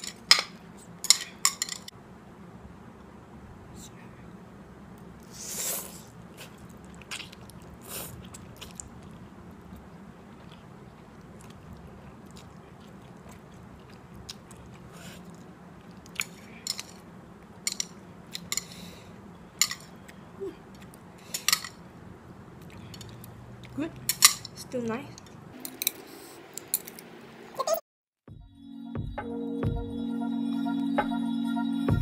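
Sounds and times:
person chewing noodles: 0:05.2 - 0:21.6, 0:22.5 - 0:24.3.

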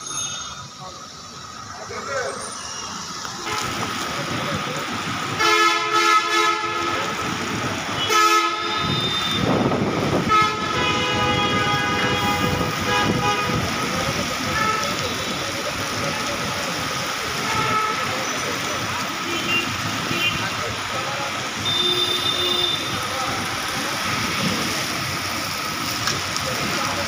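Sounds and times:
heavy rain hiss: 0:00.0 - 0:27.0
vehicle horns honking: 0:03.4 - 0:03.8, 0:05.4 - 0:07.2, 0:07.9 - 0:09.6, 0:10.2 - 0:13.9, 0:17.4 - 0:18.4, 0:19.2 - 0:20.6, 0:21.6 - 0:23.0.

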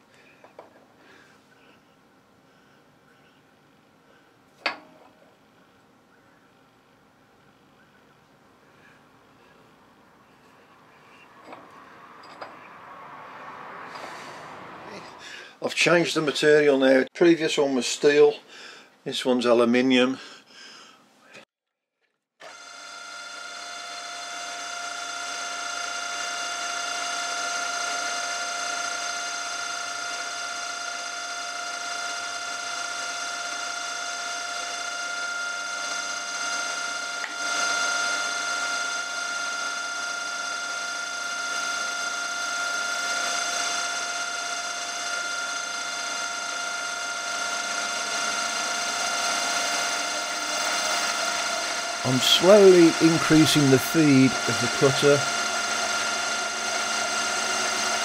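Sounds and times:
milling machine whine: 0:07.3 - 0:15.5, 0:22.4 - 0:58.0.

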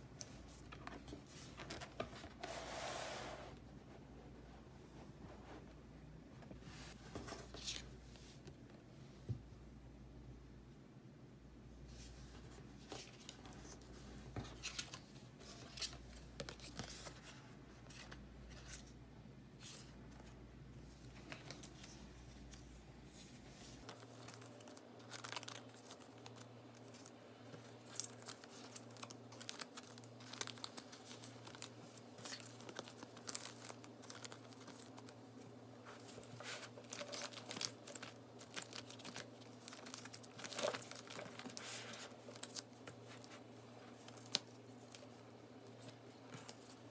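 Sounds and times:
plastic sleeves crinkling: 0:21.0 - 0:46.9.

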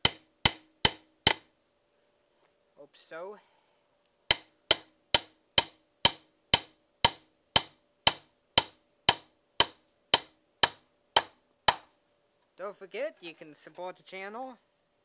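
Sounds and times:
hammer driving nail into wood: 0:00.0 - 0:01.5, 0:04.3 - 0:12.0.

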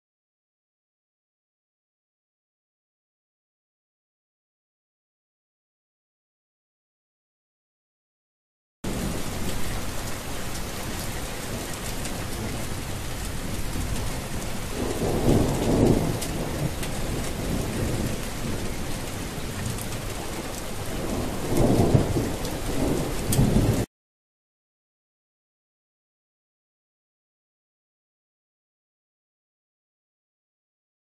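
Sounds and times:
low thunder rumbling: 0:08.9 - 0:23.9
steady rain falling: 0:08.9 - 0:23.9.

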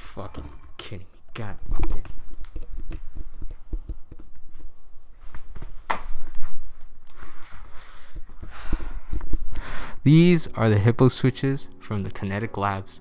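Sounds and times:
cloth rustling against microphone: 0:05.0 - 0:08.4.

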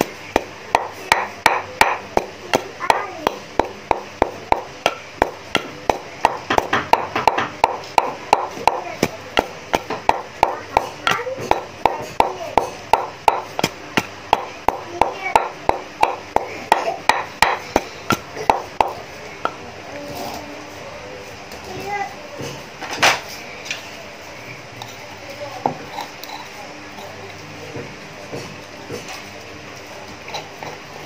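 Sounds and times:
pestle pounding in a mortar: 0:00.0 - 0:19.6.

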